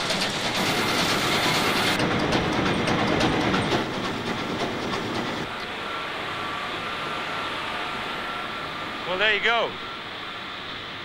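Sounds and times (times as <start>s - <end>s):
diesel engine clattering: 0.0s - 5.5s.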